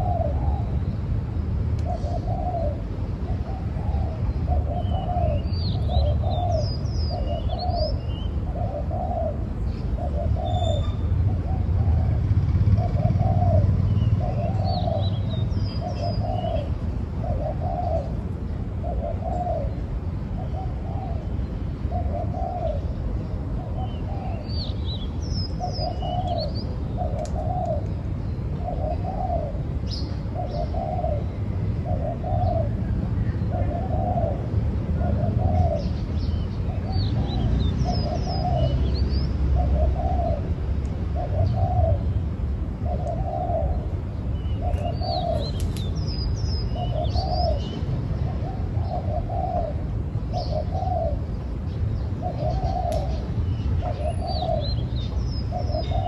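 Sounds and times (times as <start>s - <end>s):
dove cooing: 0.0s - 0.7s, 1.8s - 18.2s, 18.8s - 21.3s, 21.9s - 23.0s, 23.6s - 24.5s, 25.5s - 27.9s, 28.6s - 36.0s, 36.7s - 51.3s, 52.2s - 56.0s
small birds chirping: 21.9s - 34.4s, 35.0s - 56.0s.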